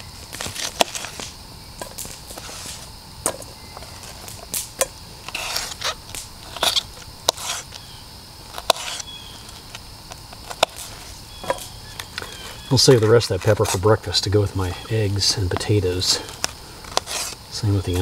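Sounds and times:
rustling scrapes: 0:00.3 - 0:02.9, 0:05.2 - 0:07.8, 0:08.5 - 0:09.7, 0:10.4 - 0:13.9, 0:16.2 - 0:17.4.

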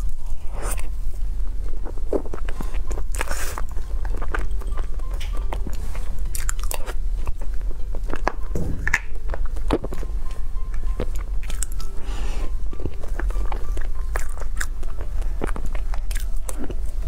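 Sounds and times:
steady low hum: 0:00.0 - 0:17.0
chewing mouth sounds: 0:12.7 - 0:17.0.

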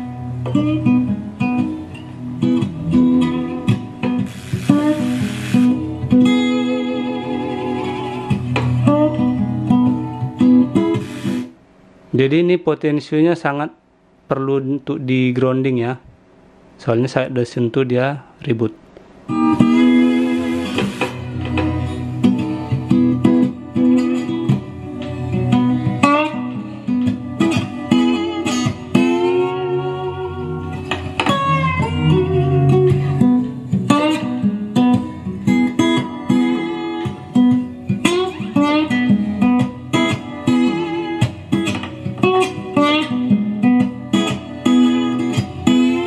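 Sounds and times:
guitar-led song: 0:00.0 - 0:11.6, 0:19.3 - 0:46.0.

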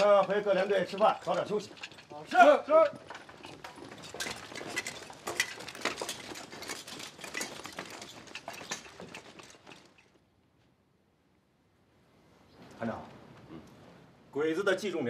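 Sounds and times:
footsteps of group walking: 0:00.0 - 0:10.8.

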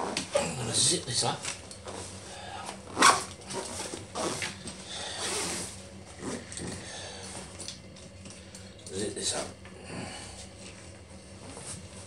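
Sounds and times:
zip being pulled: 0:02.9 - 0:04.5, 0:05.2 - 0:06.7.

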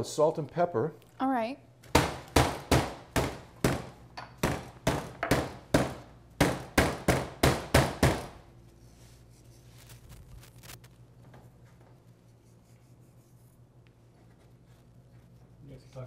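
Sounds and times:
meat hammer thumping: 0:01.9 - 0:08.4.

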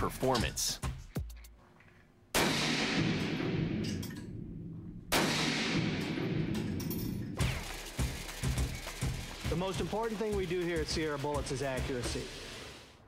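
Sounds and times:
echoing gunshots indoors: 0:02.3 - 0:09.5.

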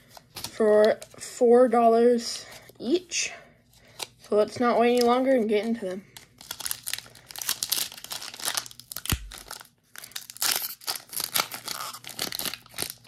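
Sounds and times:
foil wrapper crinkling and tearing: 0:06.2 - 0:13.0.

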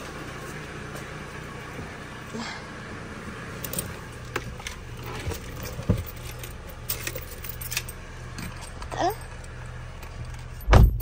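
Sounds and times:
steady low hum: 0:00.0 - 0:11.0
dull thump: 0:10.7 - 0:11.0.

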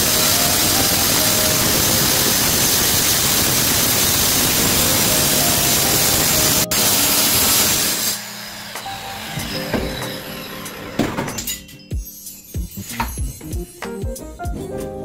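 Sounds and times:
power tool hissing: 0:00.0 - 0:11.4
soft background music: 0:04.7 - 0:08.1, 0:08.8 - 0:15.0.

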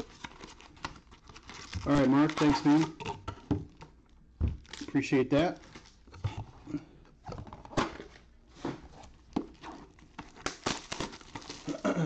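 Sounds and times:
plastic wrappers crinkling: 0:00.0 - 0:03.2, 0:03.8 - 0:06.1, 0:09.0 - 0:11.9.

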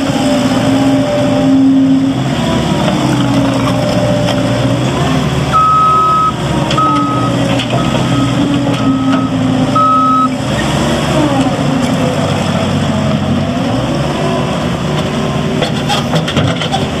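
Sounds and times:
diesel engine running: 0:00.0 - 0:17.0
reversing alarm beeps: 0:05.5 - 0:10.4.

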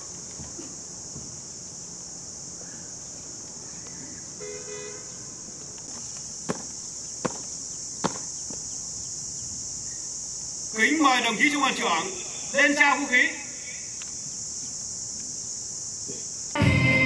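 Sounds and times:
high insect drone: 0:00.0 - 0:17.0
two-pulse horn toot: 0:04.4 - 0:05.2
boot stamps on concrete: 0:06.5 - 0:08.6.

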